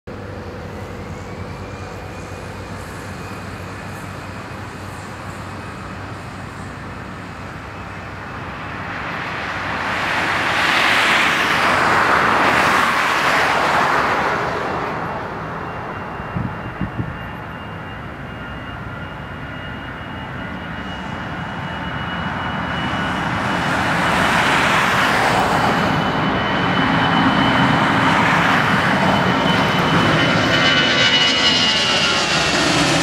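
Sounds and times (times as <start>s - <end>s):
car passing: 8.9s - 15.6s.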